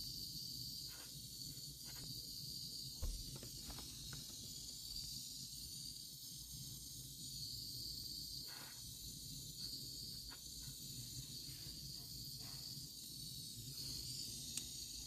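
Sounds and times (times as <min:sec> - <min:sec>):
torch flame hissing: 0:00.0 - 0:15.0.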